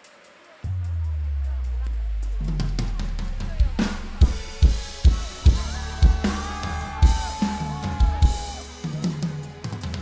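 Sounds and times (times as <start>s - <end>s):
live pop band music: 2.2s - 10.0s
kick drum beat: 4.2s - 8.6s.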